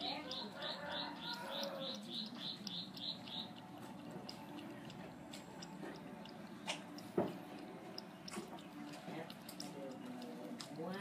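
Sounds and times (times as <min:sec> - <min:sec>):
cat lapping water: 0:00.0 - 0:11.0.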